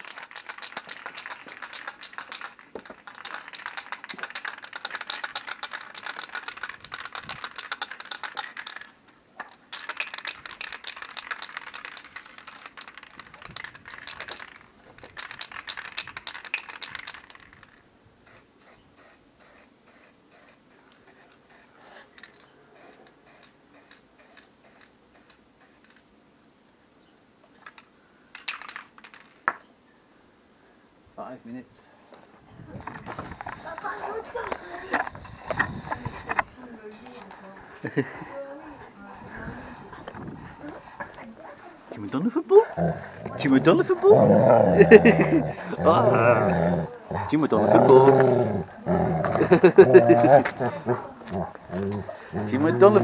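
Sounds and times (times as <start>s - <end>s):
aerosol can ball rattling: 0.0s - 26.1s, 27.7s - 29.6s.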